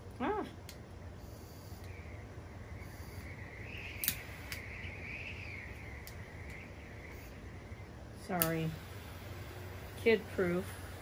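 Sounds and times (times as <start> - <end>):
steady low hum: 0.0 - 11.0
torch igniter clicks: 0.6 - 1.0, 1.8 - 2.0, 3.2 - 7.2, 8.2 - 9.0
faint wavering high tone: 1.2 - 8.0.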